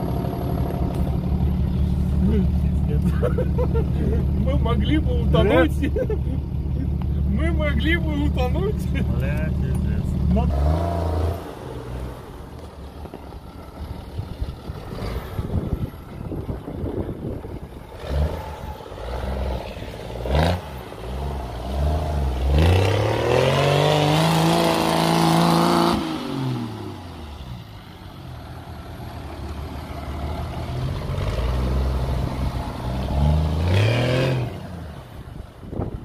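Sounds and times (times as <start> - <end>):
engine revving: 7.0 - 12.6, 13.6 - 27.8, 28.8 - 35.4.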